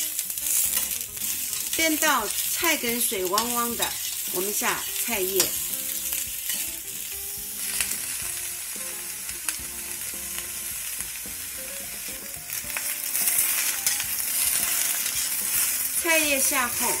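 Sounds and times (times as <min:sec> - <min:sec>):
vegetables sizzling in hot oil: 0:00.0 - 0:17.0
spatula scraping a wok: 0:00.1 - 0:08.4, 0:12.8 - 0:17.0.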